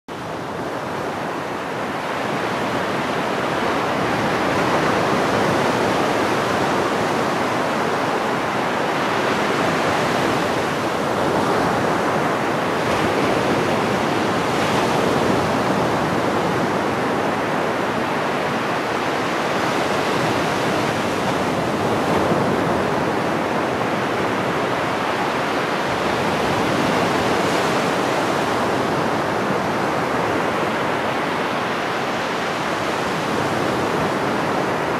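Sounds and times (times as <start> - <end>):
small waves breaking on beach: 0.1 - 34.9.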